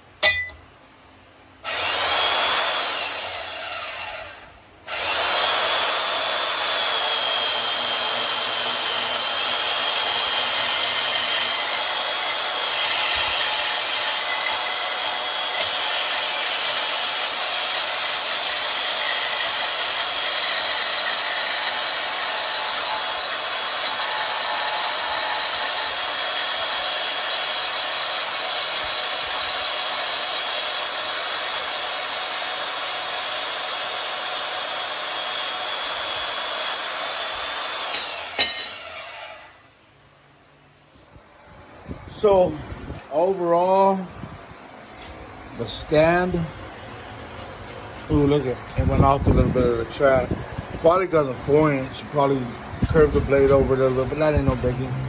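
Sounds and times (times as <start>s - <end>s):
bandsaw whining: 1.6s - 39.8s, 50.9s - 55.0s.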